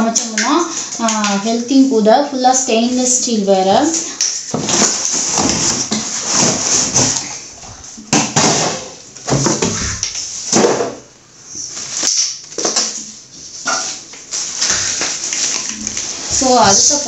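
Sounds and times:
packaging rustling and crinkling: 3.8s - 8.0s, 11.6s - 17.0s.

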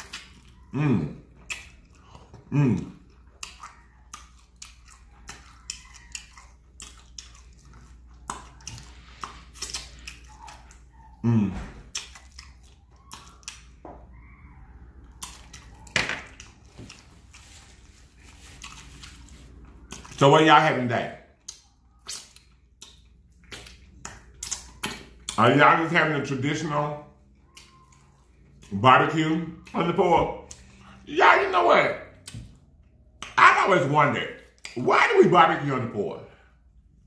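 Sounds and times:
chewing and lip-smacking: 0.0s - 31.1s, 32.0s - 33.4s, 34.4s - 34.8s.

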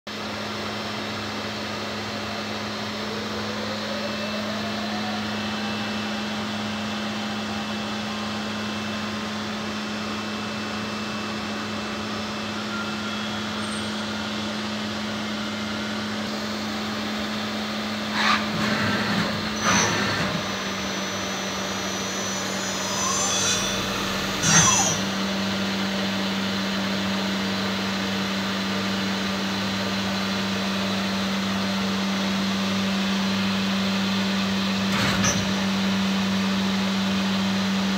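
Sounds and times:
lathe humming at idle: 0.3s - 34.8s
rising machine whir: 2.4s - 26.9s.

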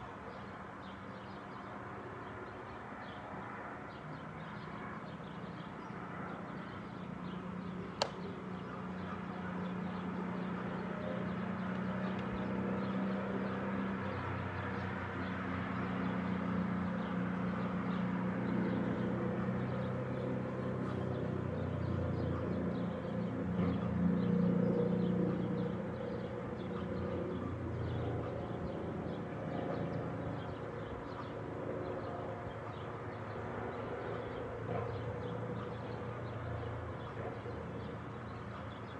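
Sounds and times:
distant traffic hum: 0.0s - 38.9s
sharp click: 8.0s - 8.3s.

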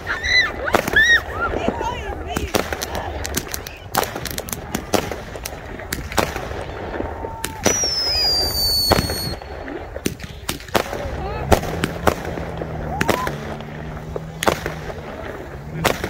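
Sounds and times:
fireworks cracks and bangs: 0.0s - 16.0s
firework whistle falling in pitch: 7.5s - 9.4s.

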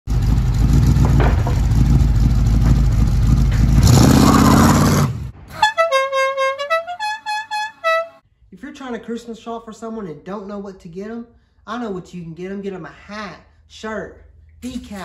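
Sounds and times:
car engine rumbling: 0.1s - 5.6s
musical car horn: 5.5s - 8.2s.

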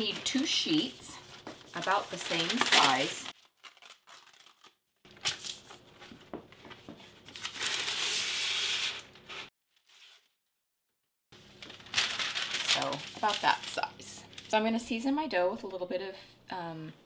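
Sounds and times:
paper crinkling and rustling: 0.0s - 10.4s, 11.4s - 14.6s
paper tearing off a roll: 1.4s - 5.8s, 7.2s - 10.3s.

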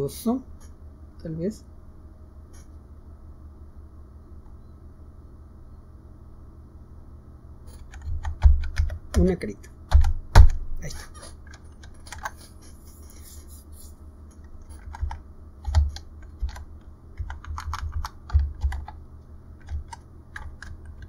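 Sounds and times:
typing on computer keyboard: 7.7s - 9.3s, 9.9s - 10.6s, 11.4s - 12.4s, 14.7s - 19.0s, 19.6s - 21.0s.

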